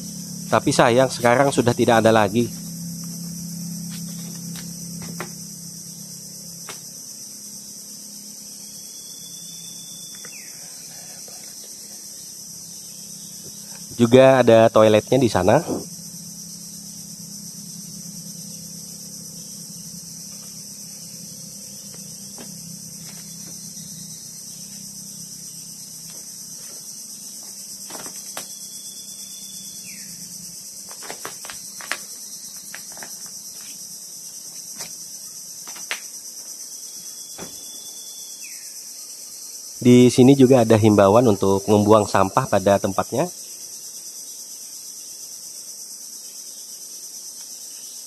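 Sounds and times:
low hum: 0.0s - 35.4s
high-pitched insect chorus: 0.0s - 48.0s.

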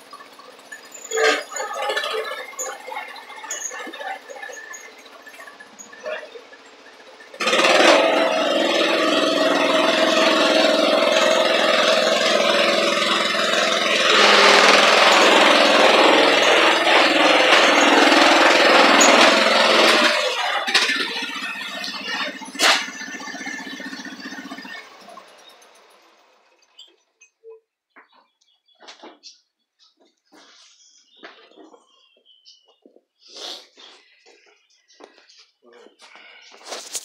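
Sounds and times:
garden tractor engine running: 0.0s - 26.9s.

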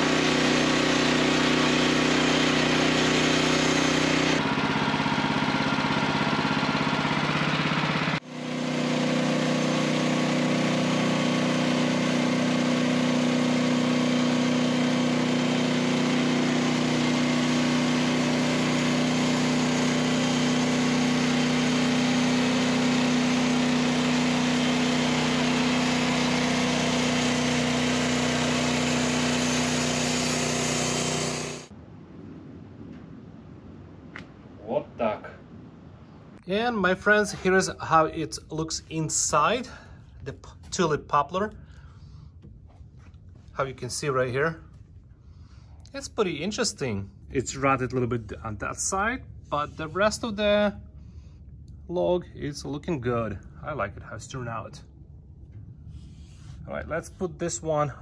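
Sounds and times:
band sawmill sawing log: 0.0s - 31.7s, 36.5s - 41.6s, 47.4s - 50.6s.

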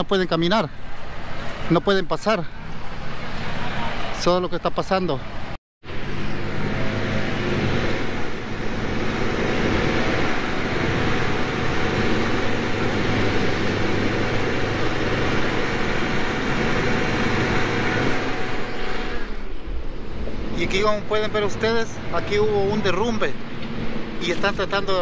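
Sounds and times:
passing vehicles rushing: 0.0s - 25.0s
low engine hum: 5.3s - 25.0s.

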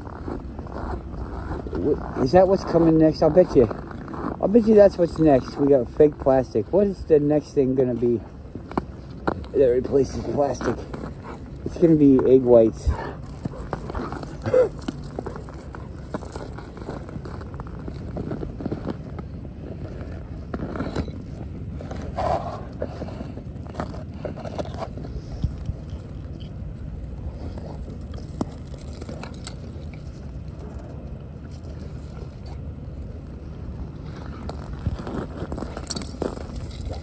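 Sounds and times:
dogs scuffling in snow: 0.2s - 8.2s, 9.6s - 19.0s.

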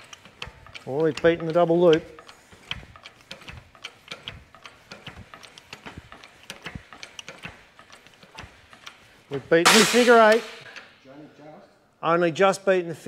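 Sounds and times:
light clicks and ticks: 0.0s - 9.4s.

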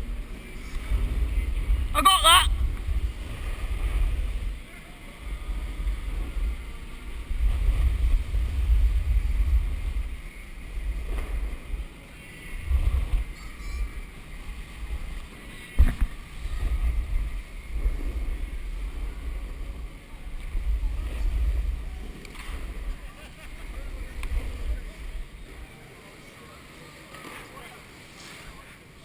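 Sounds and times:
wind rumbling on microphone: 0.0s - 26.1s
snowboard scraping over snow: 5.2s - 12.0s, 12.6s - 25.6s.

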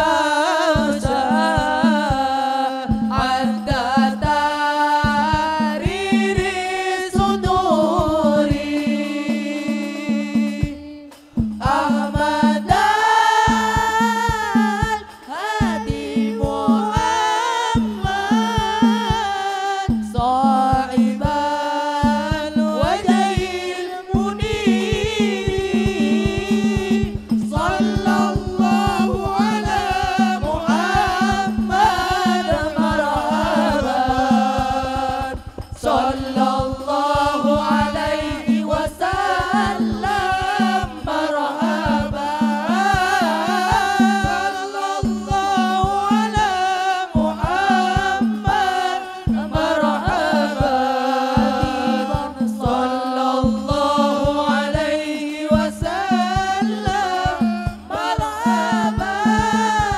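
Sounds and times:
hand drum beats: 0.0s - 59.9s
person singing devotional melody: 0.0s - 59.9s.

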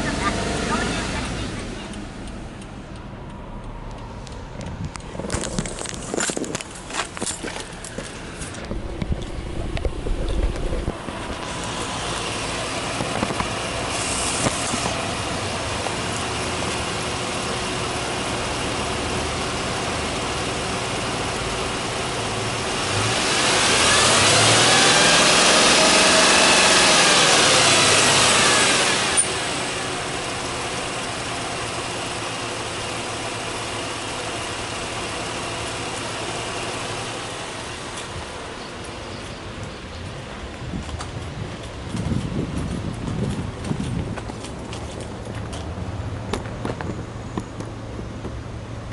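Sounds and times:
car engine idling and revving: 0.0s - 48.9s.

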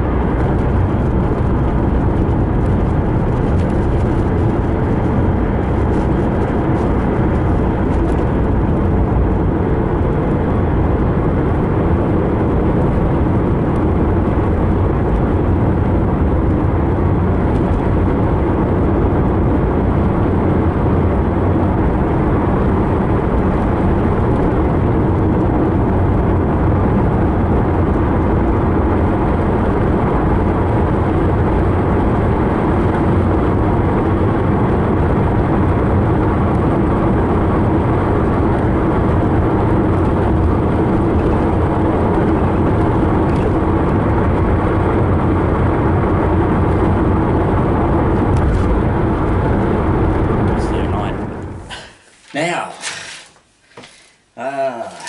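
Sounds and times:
car cabin road and engine noise: 0.0s - 54.4s.

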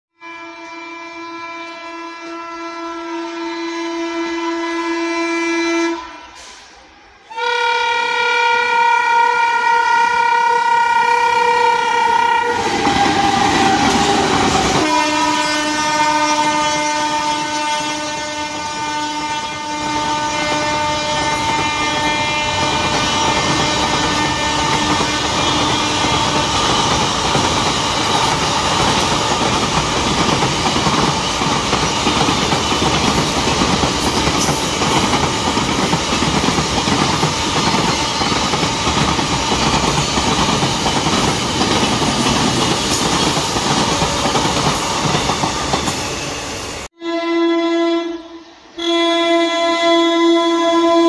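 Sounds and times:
locomotive horn blasts: 0.2s - 6.3s, 7.3s - 26.6s, 46.9s - 51.0s
train rushing past: 0.6s - 47.0s
train wheels clattering: 19.5s - 46.9s.

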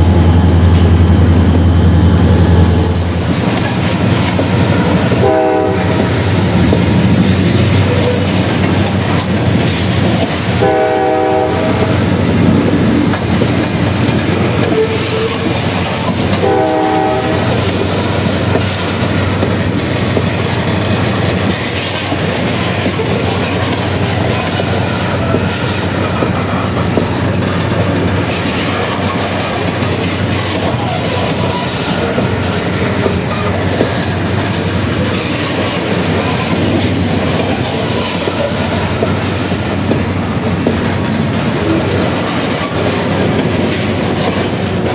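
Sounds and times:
train wheels clattering on rails: 0.0s - 44.9s
locomotive horn blasts: 5.1s - 6.0s, 10.6s - 12.0s, 16.4s - 17.6s.

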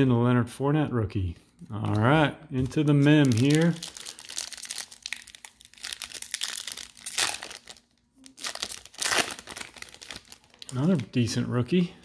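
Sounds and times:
foil wrapper tearing and crinkling: 3.0s - 11.0s.

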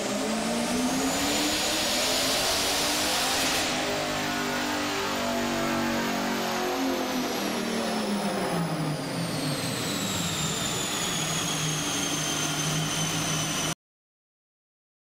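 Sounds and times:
engine running on dyno: 0.0s - 13.8s.

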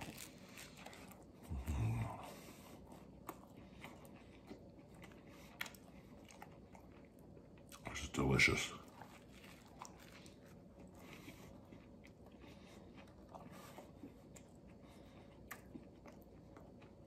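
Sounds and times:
chewing mouth clicks: 8.9s - 17.0s.

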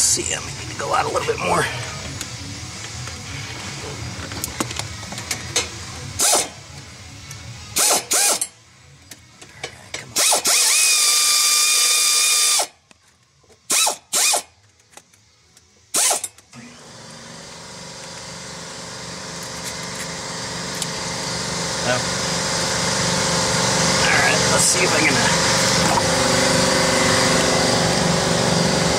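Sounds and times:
pneumatic air ratchet whirring: 2.0s - 6.6s, 7.3s - 12.8s, 13.6s - 15.2s, 15.9s - 16.8s.

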